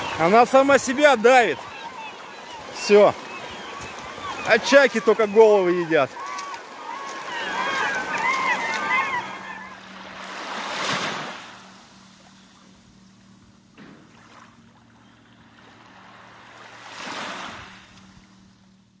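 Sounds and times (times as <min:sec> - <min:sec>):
sea water washing: 0:00.0 - 0:18.1.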